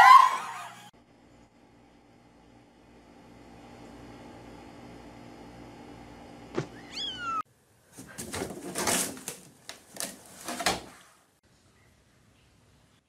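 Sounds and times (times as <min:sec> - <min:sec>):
cat meowing: 0:06.8 - 0:07.4
cat scrabbling in hamper: 0:08.0 - 0:11.0.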